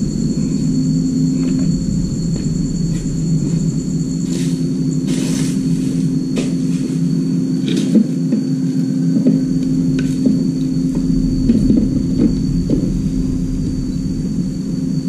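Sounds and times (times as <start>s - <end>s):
high thin whine: 0.0s - 7.7s, 9.4s - 15.0s
low mechanical hum: 0.0s - 15.0s.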